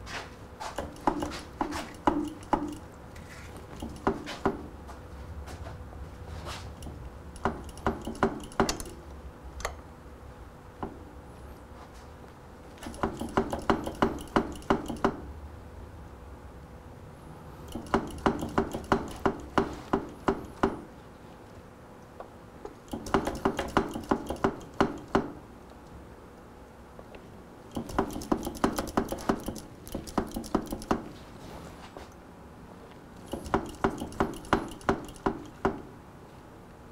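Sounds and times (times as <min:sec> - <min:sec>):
rapid metallic tapping: 0:00.8 - 0:02.9, 0:06.8 - 0:09.0, 0:12.8 - 0:15.2, 0:17.7 - 0:20.8, 0:22.9 - 0:25.3, 0:27.7 - 0:31.1, 0:33.2 - 0:35.8.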